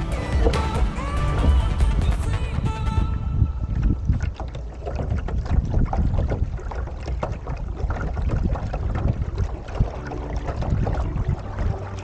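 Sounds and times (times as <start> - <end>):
water splashing against boat hull: 0.0 - 12.0
wind rumble on microphone: 0.4 - 12.0.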